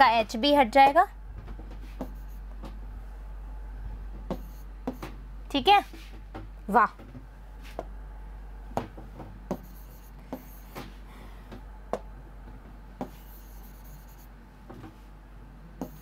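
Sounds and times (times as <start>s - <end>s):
low hum: 1.1s - 5.5s
pen scratching on paper: 2.0s - 2.4s, 4.3s - 5.0s, 9.5s - 10.8s, 13.0s - 14.3s, 15.8s - 16.0s.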